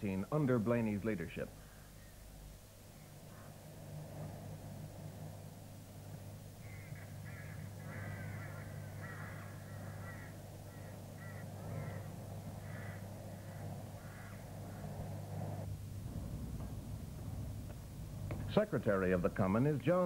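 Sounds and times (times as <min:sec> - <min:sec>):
steady low hum: 0:00.0 - 0:20.0
crows cawing: 0:01.6 - 0:02.3, 0:06.6 - 0:15.7.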